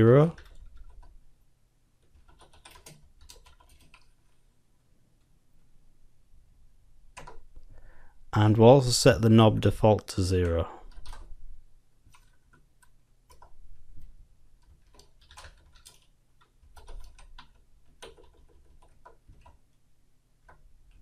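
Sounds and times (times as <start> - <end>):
keyboard typing clicks: 2.0 - 4.1, 7.1 - 7.5, 12.1 - 13.6, 14.6 - 19.6.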